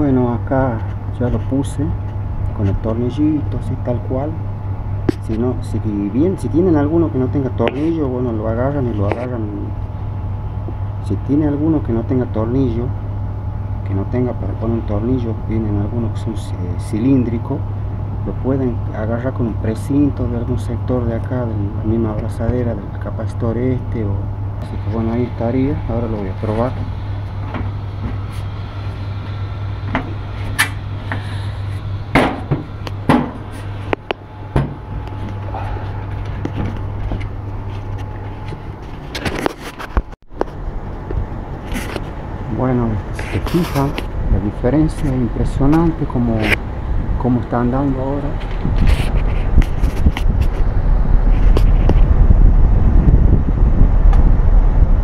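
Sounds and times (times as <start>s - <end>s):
air conditioner unit humming: 0.0s - 55.0s.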